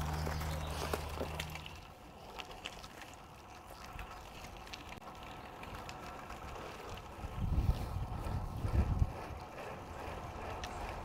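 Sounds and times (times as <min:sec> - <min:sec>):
wind buffeting microphone: 0:06.4 - 0:11.0.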